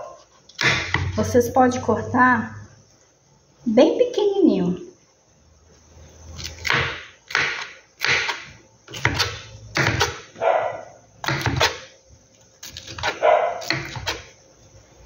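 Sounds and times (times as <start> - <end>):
knife chopping on plastic board: 0.6 - 1.2, 6.4 - 10.4, 11.2 - 11.9, 12.6 - 14.3.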